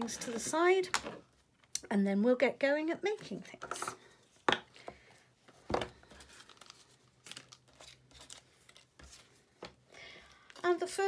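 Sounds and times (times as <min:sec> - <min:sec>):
paper and card rustling: 0:05.5 - 0:11.0.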